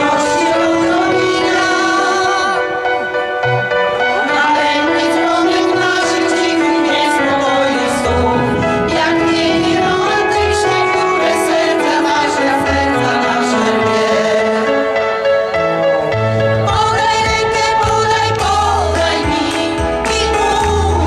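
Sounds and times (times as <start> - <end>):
music with long held notes: 0.0 - 21.0.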